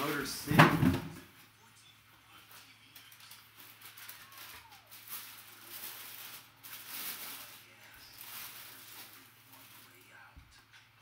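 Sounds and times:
tissue paper rustling: 2.4 - 10.3.

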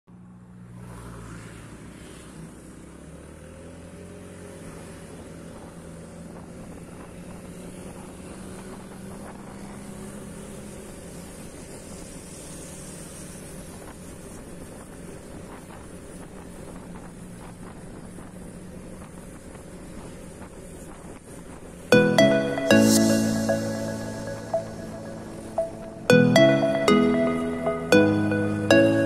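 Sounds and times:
wind and road noise: 0.1 - 21.9.

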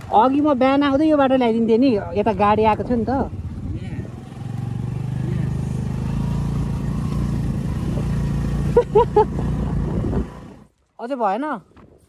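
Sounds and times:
scooter engine running: 0.0 - 10.7.

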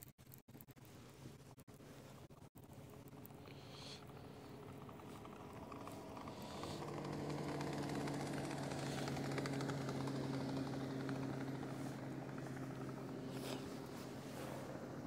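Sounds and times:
boat motor humming: 1.6 - 15.0.

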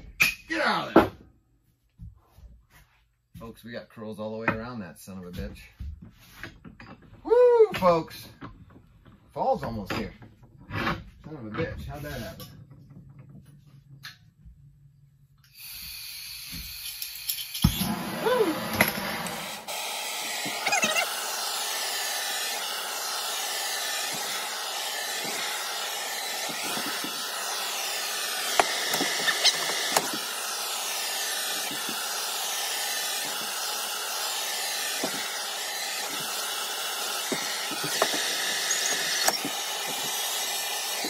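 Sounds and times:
gas torch hissing: 15.4 - 41.0.

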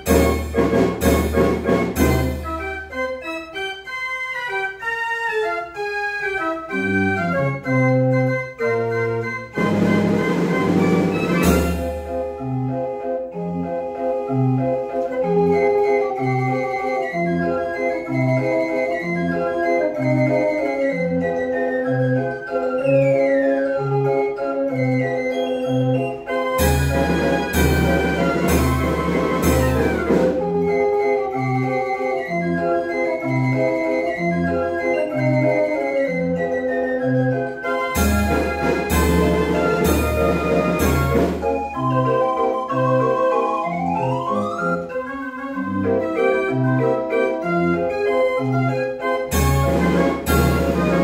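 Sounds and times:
drum strokes: 0.0 - 2.8, 9.6 - 12.4, 26.4 - 30.5, 37.7 - 41.8, 49.3 - 51.0
street organ playing a tune: 0.0 - 51.0.

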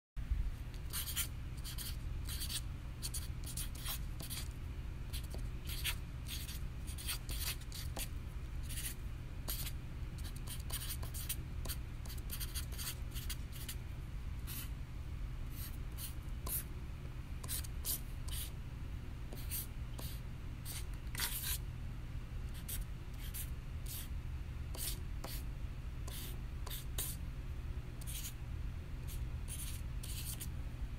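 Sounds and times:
steady low hum: 0.2 - 30.9
marker scratching on paper: 0.8 - 4.5, 5.1 - 13.8, 14.5 - 14.7, 15.5 - 16.7, 17.4 - 18.5, 19.3 - 21.6, 22.6 - 24.1, 24.7 - 25.4, 26.1 - 27.2, 28.0 - 28.4, 29.1 - 30.5.

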